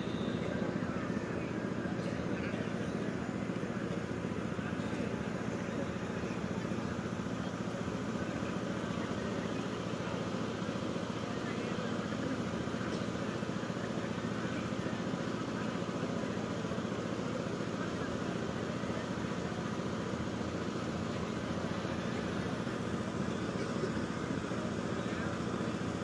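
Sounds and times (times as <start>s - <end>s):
murmur of large outdoor crowd: 0.0s - 26.0s.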